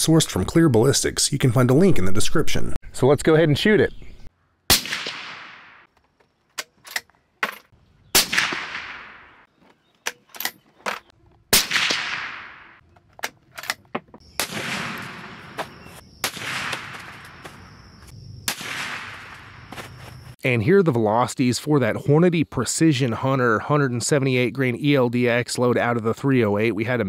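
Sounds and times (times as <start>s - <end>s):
suppressed rifle shots echoing: 4.7s - 5.9s, 8.1s - 9.5s, 11.5s - 12.8s, 14.4s - 17.3s, 18.5s - 19.4s.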